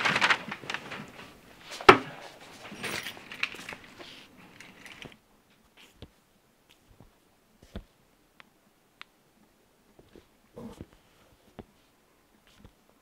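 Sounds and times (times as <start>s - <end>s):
clothes and bedding rustling: 0.0s - 8.0s, 9.9s - 13.0s
light clattering: 1.8s - 5.2s.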